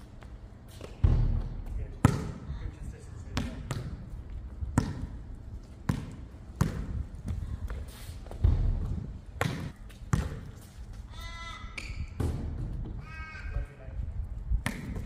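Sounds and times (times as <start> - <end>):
basketball bouncing on hard court: 1.0 - 2.4, 3.3 - 4.1, 4.7 - 5.2, 5.8 - 10.6.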